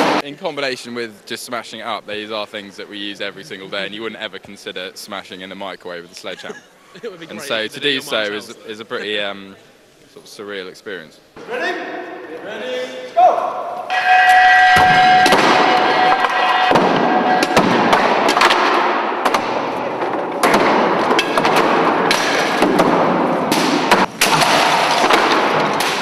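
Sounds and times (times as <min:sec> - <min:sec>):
single pitched tone: 0:13.9 - 0:17.6
piano being smashed: 0:14.0 - 0:26.0.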